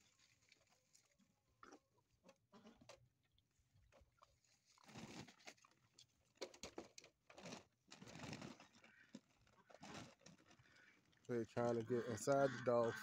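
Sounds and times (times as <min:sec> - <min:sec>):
puppies crunching kibble: 0:04.6 - 0:13.0.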